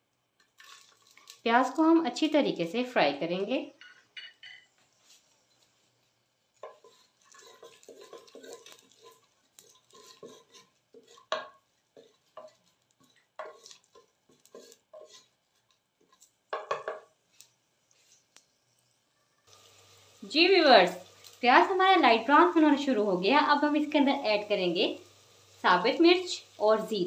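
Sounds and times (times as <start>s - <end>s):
wooden spoon stirring in clay pot: 0.4s - 1.8s, 4.8s - 18.5s.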